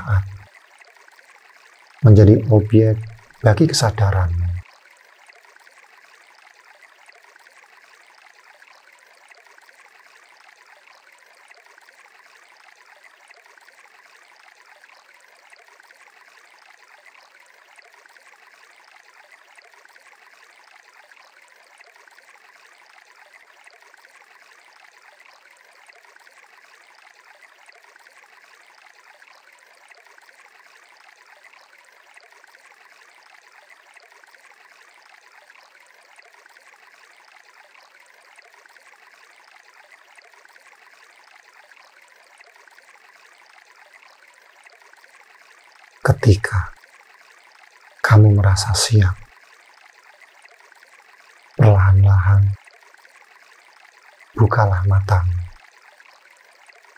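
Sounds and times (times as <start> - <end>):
faint running water: 0.0 - 56.9.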